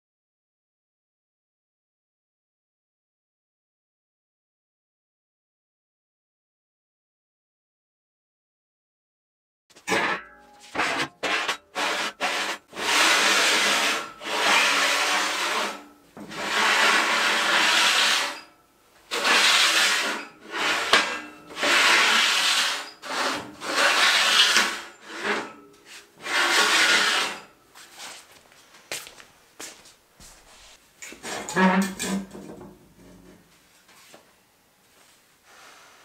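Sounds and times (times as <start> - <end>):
metal clanks: 9.7 - 11.7
steel scraping on steel: 9.8 - 28.2, 31.2 - 32.6.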